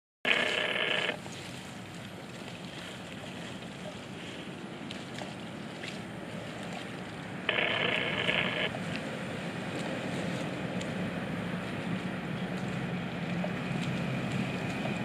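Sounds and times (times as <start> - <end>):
outdoor background noise: 0.2 - 15.0
high-pitched buzz: 7.5 - 8.7.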